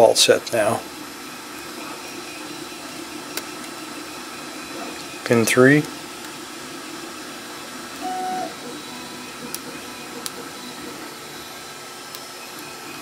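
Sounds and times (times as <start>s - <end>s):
steady background hiss: 7.8s - 8.8s
brief hum: 8.0s - 8.6s.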